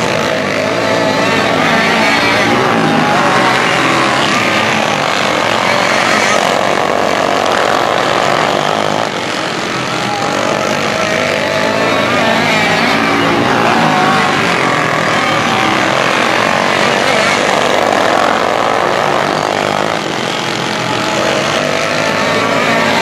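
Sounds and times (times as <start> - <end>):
kart engines running hard: 0.0 - 23.0.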